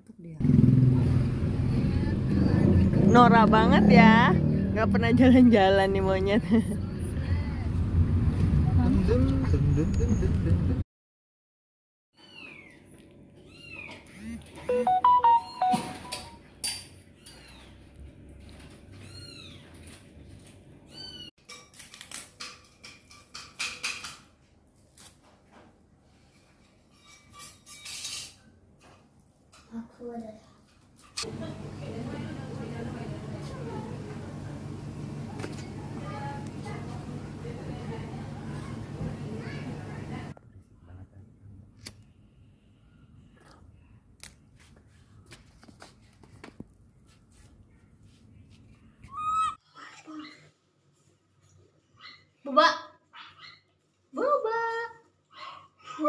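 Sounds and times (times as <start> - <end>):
baby monkey high-pitched calls: 49.1 - 50.5.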